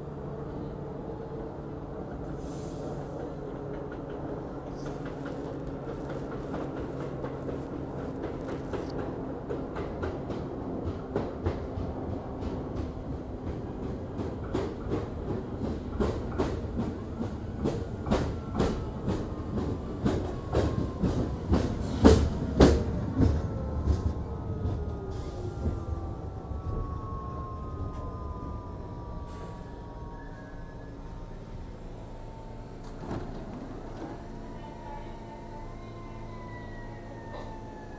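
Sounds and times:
falling whine of slowing train: 0:00.0 - 0:37.9
train hiss: 0:02.2 - 0:03.6, 0:04.6 - 0:08.9, 0:25.1 - 0:25.8.

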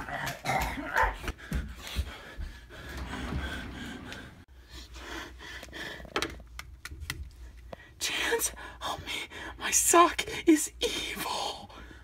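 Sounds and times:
hurried footsteps: 0:00.0 - 0:04.5.

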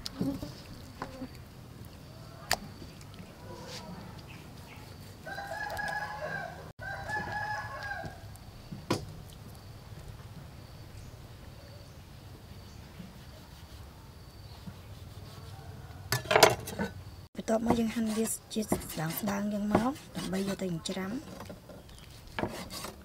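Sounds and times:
rooster crowing: 0:05.2 - 0:08.3, 0:15.4 - 0:16.3.

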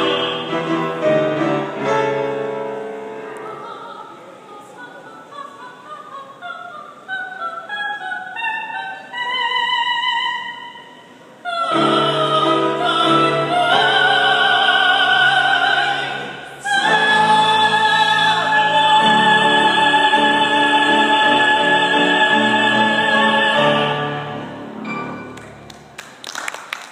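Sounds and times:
operatic vocal trio singing: 0:00.0 - 0:01.4, 0:11.4 - 0:24.6.

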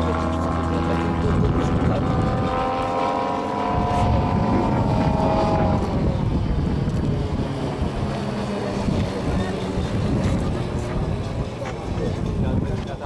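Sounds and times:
model airplane motor droning: 0:00.0 - 0:13.0
wind rumbling on microphone: 0:00.0 - 0:13.0.

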